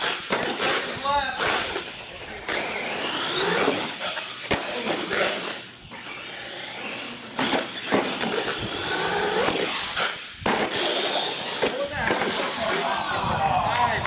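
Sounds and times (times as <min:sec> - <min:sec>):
toy truck motor whining: 0:00.0 - 0:12.8.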